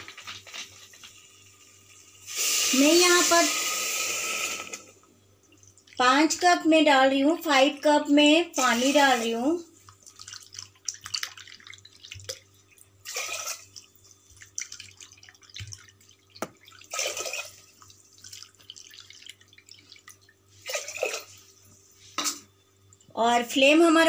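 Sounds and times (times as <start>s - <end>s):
water pouring into pot: 0.1s - 5.0s, 8.6s - 21.5s
water drips and splashes: 5.4s - 6.4s, 8.6s - 21.7s.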